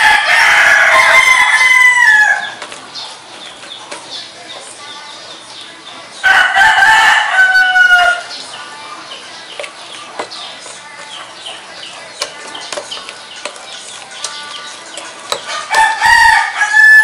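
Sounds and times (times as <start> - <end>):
rooster crowing: 0.0 - 2.6, 6.2 - 8.3, 15.5 - 17.0.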